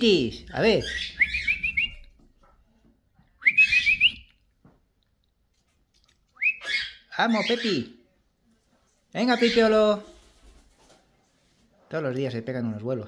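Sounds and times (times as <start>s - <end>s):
parrot whistled chirps: 0.9s - 2.0s, 3.4s - 4.3s, 6.4s - 7.0s.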